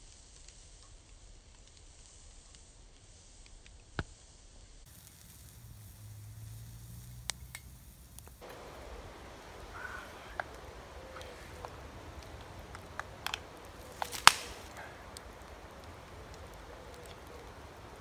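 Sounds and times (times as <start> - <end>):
stove hissing: 0.0 - 18.0
wood crackling pops: 6.9 - 18.0.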